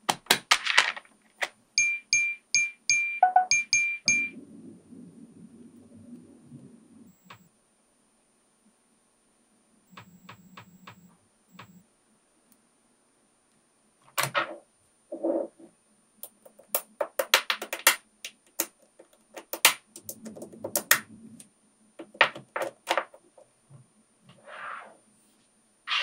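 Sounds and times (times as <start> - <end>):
balls rattling: 0.4 - 1.6
magnetic balls clicking: 9.9 - 11.8, 16.2 - 23.4.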